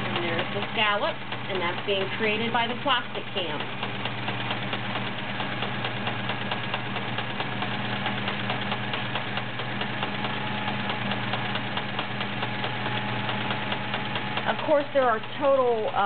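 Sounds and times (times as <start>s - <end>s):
needle ticking: 0.0s - 16.0s
sewing machine motor hum: 0.0s - 16.0s.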